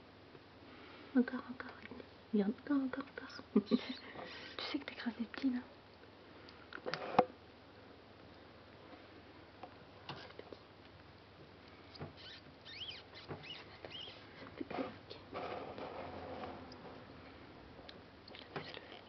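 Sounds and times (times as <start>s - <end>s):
rat pups squeaking: 11.9s - 15.0s, 18.6s - 19.0s.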